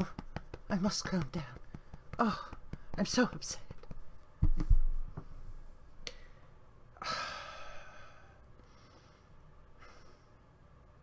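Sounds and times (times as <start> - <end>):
woman sighing: 2.2 - 2.6, 7.0 - 8.4.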